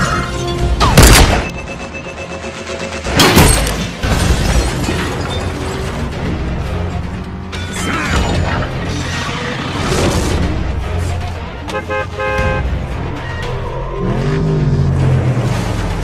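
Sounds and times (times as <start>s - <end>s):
dramatic film music: 0.0s - 16.0s
mechanical clanking and whirring: 0.3s - 10.8s.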